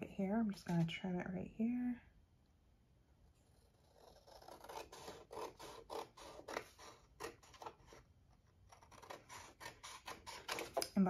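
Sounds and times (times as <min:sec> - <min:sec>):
scissors cutting paper: 0:03.4 - 0:11.0.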